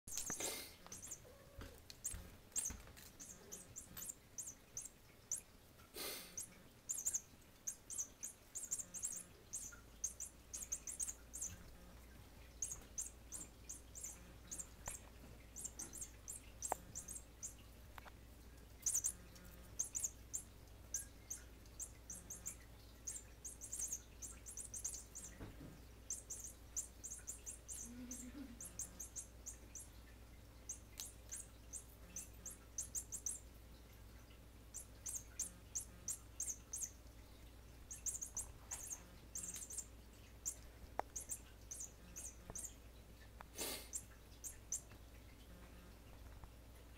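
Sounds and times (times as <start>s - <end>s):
mouse squeaking: 0.1s - 5.6s, 6.3s - 30.0s, 30.6s - 33.5s, 34.7s - 37.1s, 37.7s - 42.9s, 43.8s - 45.0s.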